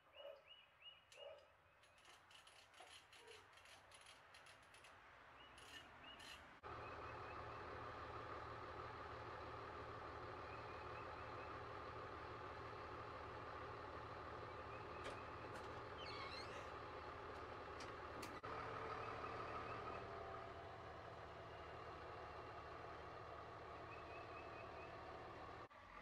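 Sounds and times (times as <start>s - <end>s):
diesel truck engine idling: 6.6s - 26.0s.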